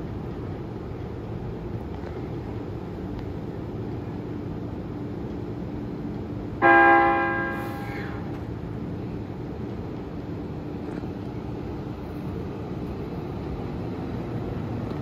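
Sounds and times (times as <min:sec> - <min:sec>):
train warning horn blast: 0:06.6 - 0:08.4.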